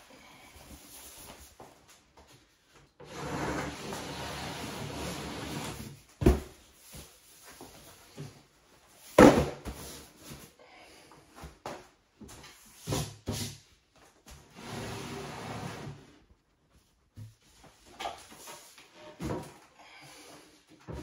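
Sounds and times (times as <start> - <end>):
cabinet and box knocks and thumps: 6.2 - 6.6, 9.2 - 9.9.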